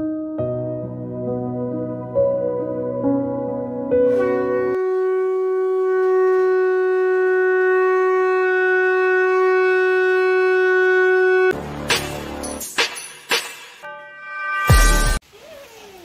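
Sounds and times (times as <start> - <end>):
conch shell blown: 3.8 - 11.8, 13.9 - 15.2.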